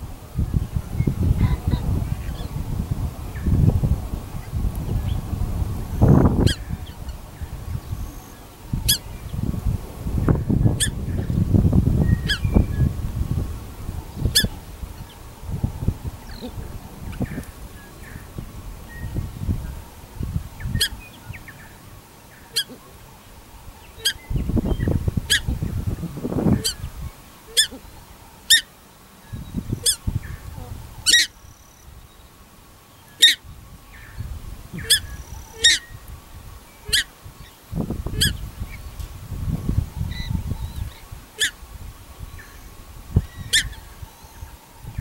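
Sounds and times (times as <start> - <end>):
wind rumble on microphone: 0.0 - 28.6, 29.2 - 32.4, 33.2 - 45.0
shelducks honking: 19.9 - 23.0, 23.9 - 24.4, 26.4 - 28.7, 29.8 - 31.4, 33.2 - 33.4, 34.8 - 35.9, 36.8 - 37.2, 41.4 - 41.6.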